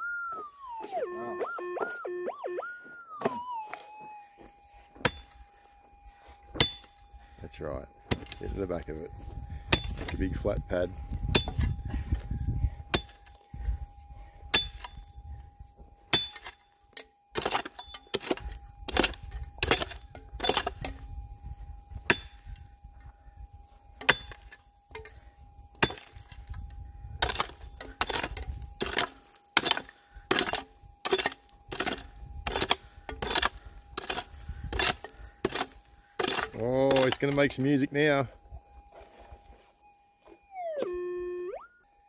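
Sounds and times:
faint steady tone: 0:00.0 - 0:42.0
pick clinking on rock: 0:25.8 - 0:37.8.

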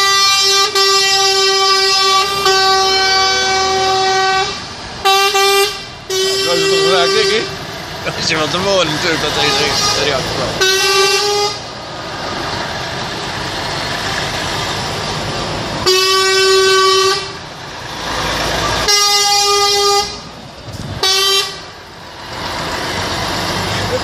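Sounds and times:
truck horn blasts: 0:00.0 - 0:07.6, 0:08.6 - 0:11.7, 0:15.8 - 0:17.5, 0:18.7 - 0:20.3, 0:21.0 - 0:21.8
vehicle engine and road noise: 0:00.0 - 0:24.0.

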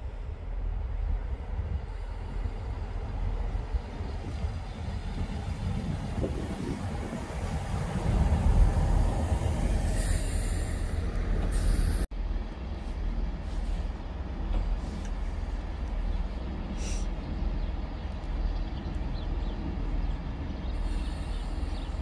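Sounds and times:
diesel train engine rumble: 0:00.0 - 0:22.0
air brakes hissing: 0:09.7 - 0:12.1, 0:16.8 - 0:17.2.

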